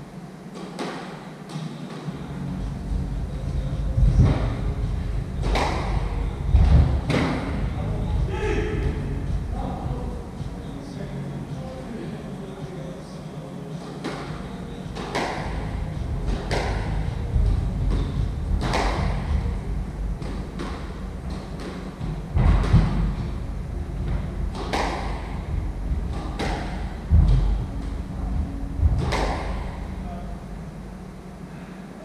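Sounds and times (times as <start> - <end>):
squash ball cracking off rackets: 5.4 - 7.6, 13.7 - 19.5, 24.5 - 25.5, 26.1 - 27.5, 28.9 - 29.8.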